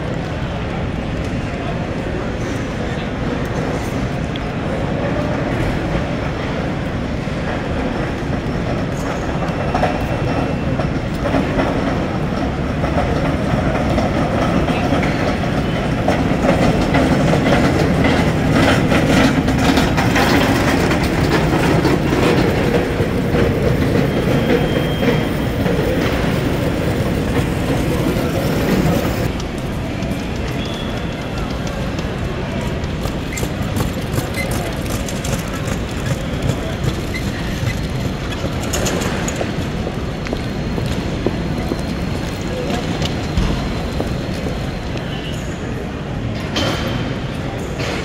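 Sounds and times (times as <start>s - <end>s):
busy airport hall din: 0.0s - 48.0s.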